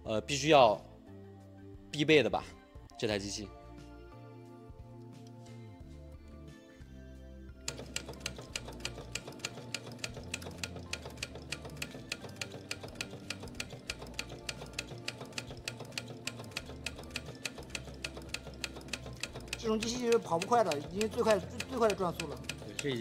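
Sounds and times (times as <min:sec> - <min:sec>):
sewing machine clicking: 0:07.6 - 0:23.0.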